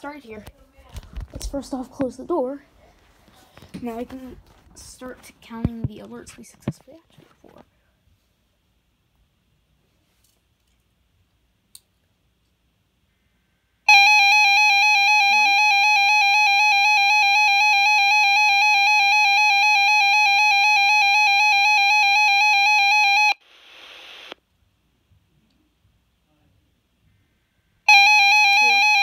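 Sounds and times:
electronic alarm tone: 0:13.9 - 0:23.4, 0:27.9 - 0:29.0
radio static hiss: 0:23.1 - 0:24.4.

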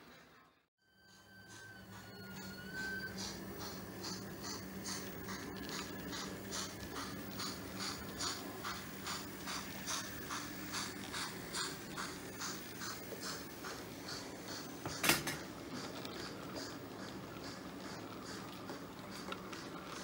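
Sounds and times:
steam chuff: 0:01.0 - 0:20.0
model train whistle: 0:01.1 - 0:03.3.

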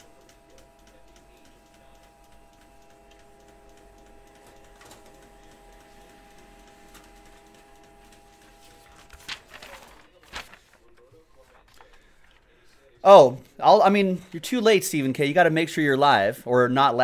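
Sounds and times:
printer whirring and ticking: 0:00.0 - 0:11.9.

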